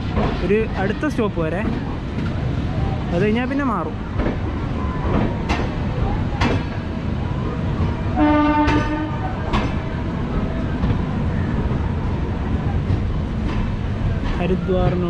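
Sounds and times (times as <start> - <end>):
train rumbling: 0.0 - 15.0
locomotive horn blast: 8.2 - 9.2.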